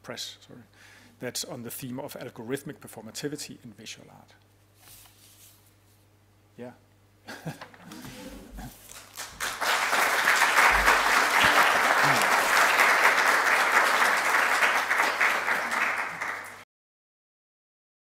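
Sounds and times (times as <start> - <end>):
audience applauding: 8.9 - 16.6.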